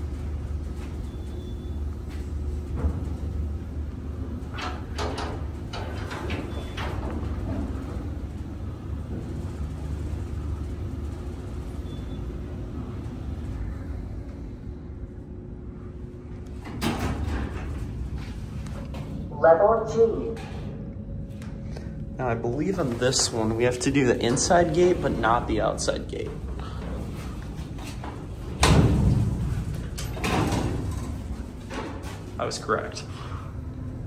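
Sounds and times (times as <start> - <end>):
elevator cab stopping clatter: 0.0 - 14.1, 26.4 - 32.4
elevator cab and gate rattling: 0.0 - 14.2, 16.6 - 20.6, 22.2 - 34.0
elevator drive hum: 0.0 - 34.0.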